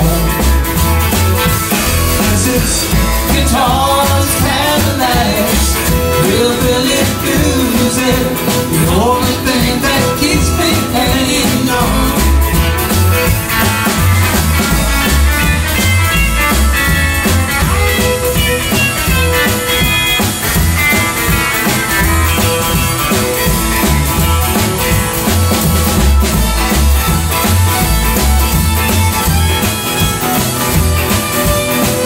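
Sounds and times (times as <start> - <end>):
drum kit beat: 0.0 - 32.0
electric guitar: 0.0 - 32.0
upright bass: 0.0 - 32.0
fiddle: 12.2 - 32.0.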